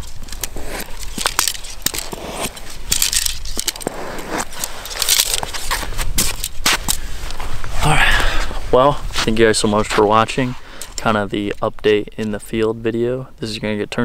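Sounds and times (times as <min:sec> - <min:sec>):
arrows clattering together: 0:00.0 - 0:07.0
arrows scraping out of foam: 0:00.0 - 0:07.4.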